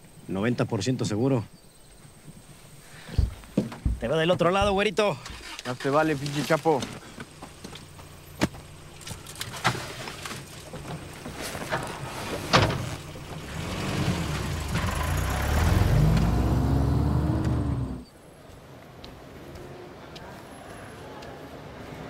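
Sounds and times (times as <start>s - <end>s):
vehicle engine revving: 11.9s - 18.1s.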